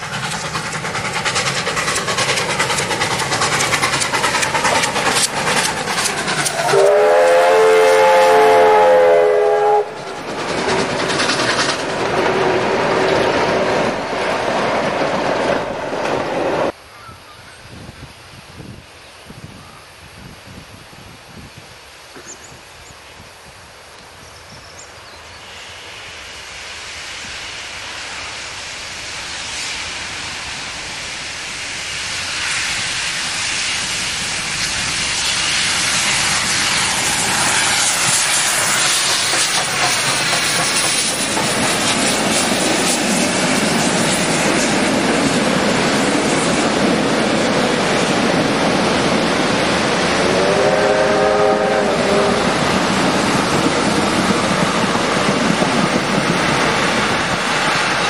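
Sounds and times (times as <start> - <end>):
train carriages rolling past: 0.0 - 16.8, 23.4 - 58.0
steam locomotive passing: 0.0 - 58.0
train whistle: 6.3 - 10.2, 50.1 - 52.8.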